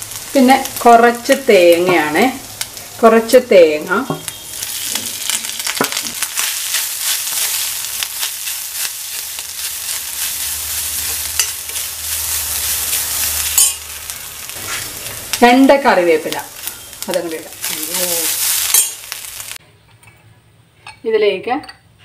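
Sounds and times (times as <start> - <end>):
oil sizzling in a pan: 0.0 - 19.6
steel spoon scraping a pan: 4.6 - 15.2, 17.6 - 19.1.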